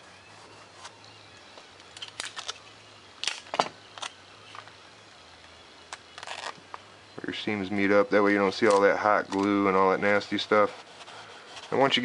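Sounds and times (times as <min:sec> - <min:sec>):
foam model and tape clicks and crackles: 0:00.7 - 0:04.8, 0:05.4 - 0:06.9, 0:08.2 - 0:12.0.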